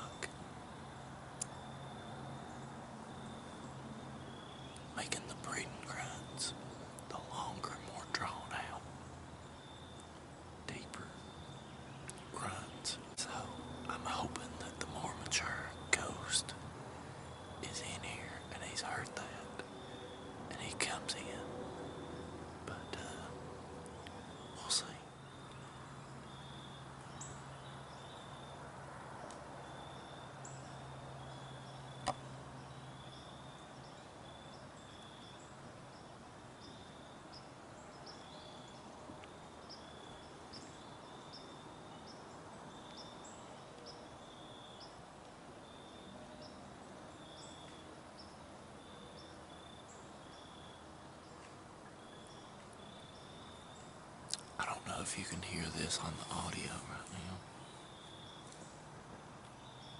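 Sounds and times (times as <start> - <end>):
faint low hum: 0.0 - 59.9.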